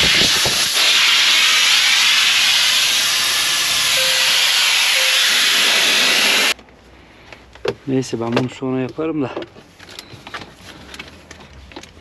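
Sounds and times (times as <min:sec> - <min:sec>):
compressed air hissing from hose: 0:00.0 - 0:06.6.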